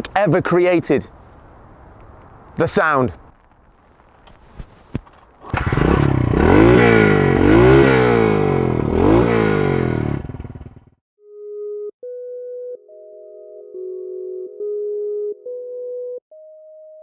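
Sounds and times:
motorcycle engine revving: 5.4 - 11.0.

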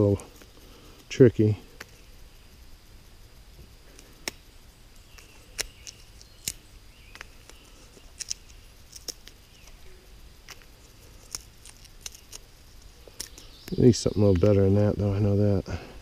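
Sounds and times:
twigs snapping: 4.0 - 9.8, 10.4 - 14.6.

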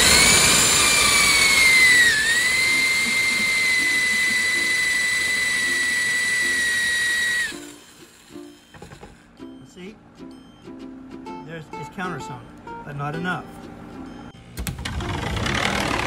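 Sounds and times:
electric drill whining: 0.0 - 9.3.

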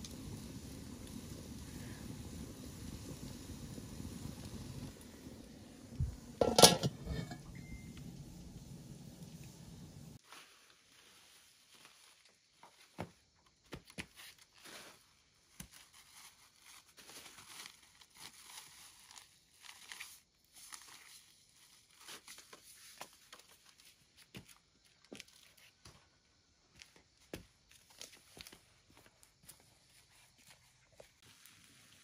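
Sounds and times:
rustling and crinkling: 10.1 - 26.1, 26.8 - 32.0.

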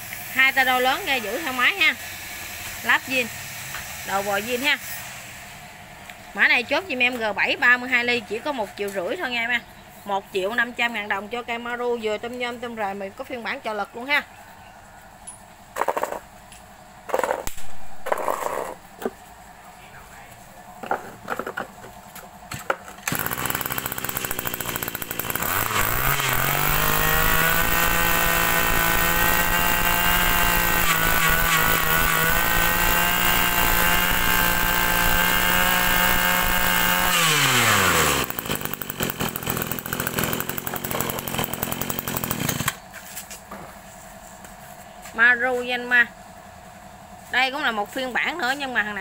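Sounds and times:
brush cutter engine revving: 0.1 - 5.4, 17.1 - 18.9, 23.0 - 43.3.

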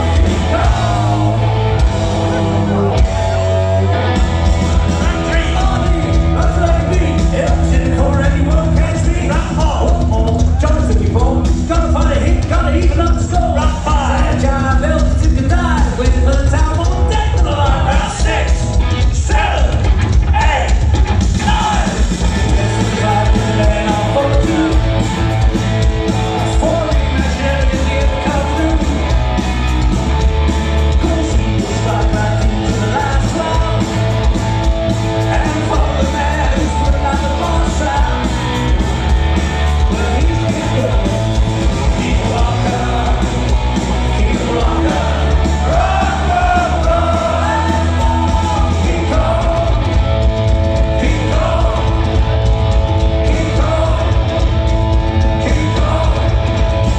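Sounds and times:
rock band playing live: 0.0 - 56.9
person singing: 22.5 - 25.1, 39.8 - 49.9, 50.9 - 52.2, 53.2 - 54.4, 55.2 - 56.9.

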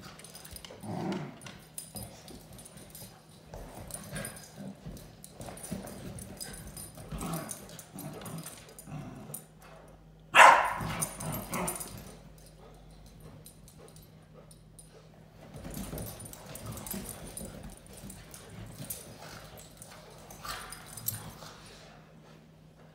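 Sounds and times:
dogs scuffling: 0.0 - 9.1, 15.2 - 22.1
dog barking: 10.4 - 10.9.

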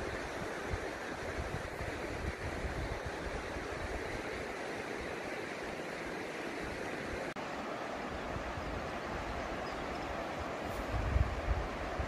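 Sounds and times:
wind buffeting microphone: 0.0 - 4.4, 8.3 - 12.0
river water rushing: 0.0 - 12.0.

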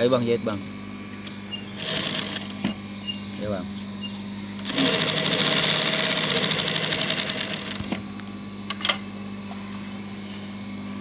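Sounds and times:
steady low hum: 0.0 - 11.0
sewing machine stitching: 1.8 - 2.5, 4.6 - 7.8.

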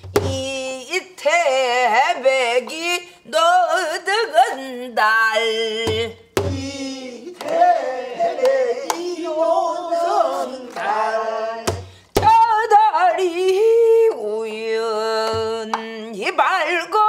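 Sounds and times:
woman singing folk song: 0.2 - 7.1, 10.3 - 17.0
barrel drum struck: 5.9 - 6.8.

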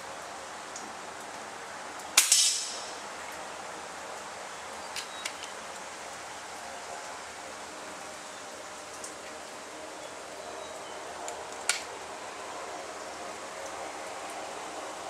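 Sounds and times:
air rifle shot: 2.2 - 3.0.

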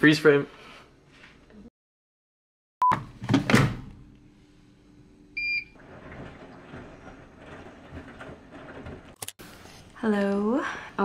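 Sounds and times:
washing machine running: 3.2 - 9.2.

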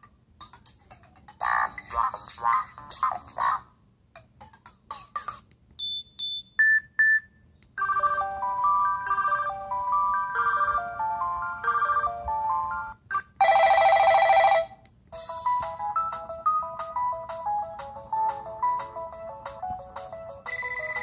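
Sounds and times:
short paired beeps: 5.8 - 7.3.

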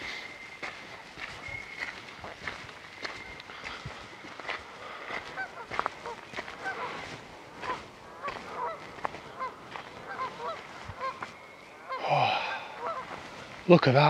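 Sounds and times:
waterfowl honking: 4.4 - 13.7.

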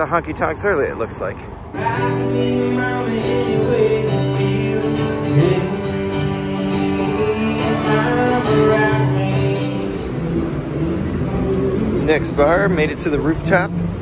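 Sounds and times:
country guitar: 1.2 - 14.0
person singing: 1.8 - 12.1.

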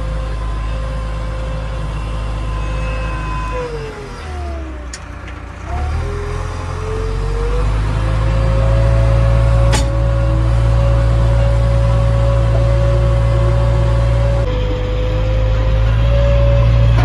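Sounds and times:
backhoe diesel engine running: 0.0 - 17.0.

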